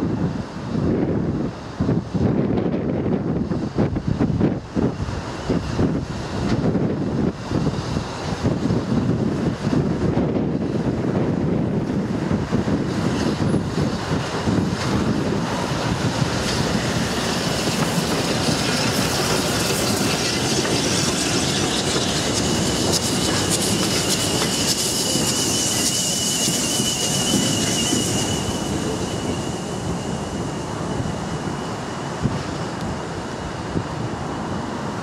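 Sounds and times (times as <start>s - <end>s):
steam train running on rails: 0.0s - 35.0s
steam hiss: 12.2s - 35.0s
high-pitched wheel squeal: 19.9s - 30.8s.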